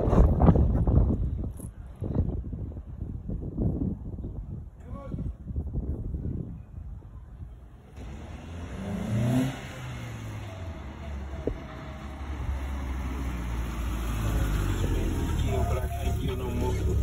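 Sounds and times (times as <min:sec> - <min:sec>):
car engine approaching: 0:07.9 - 0:17.0.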